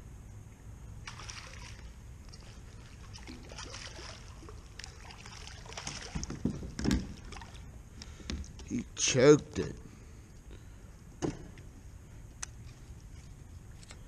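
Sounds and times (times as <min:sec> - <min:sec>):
water splashing and dripping: 0:01.0 - 0:07.8.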